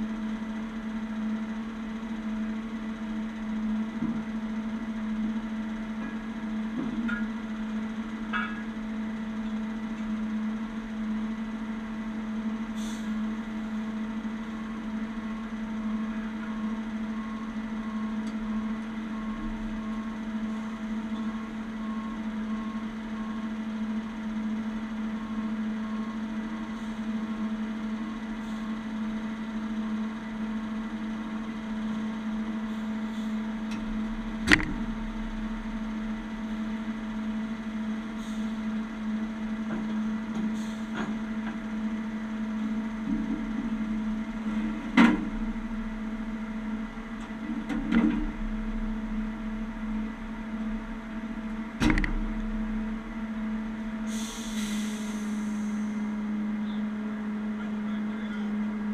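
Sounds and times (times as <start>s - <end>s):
diesel engine idling: 0.0s - 58.9s
sharp click: 34.5s - 34.8s, 51.8s - 52.2s.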